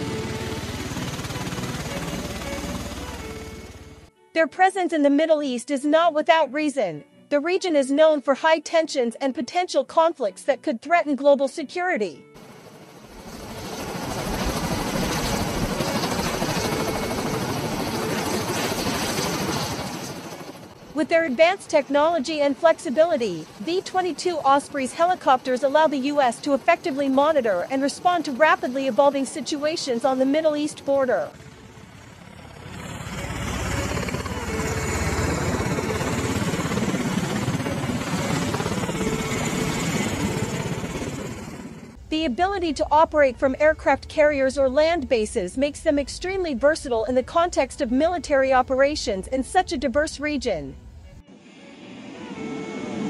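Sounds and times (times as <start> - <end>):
rotor and engine noise: 0.0 - 4.1, 12.4 - 42.1, 50.7 - 53.0.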